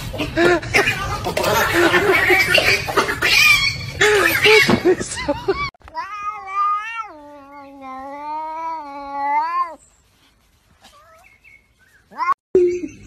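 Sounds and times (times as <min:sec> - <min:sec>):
scuffle with short cries: 0:06.0 - 0:12.4.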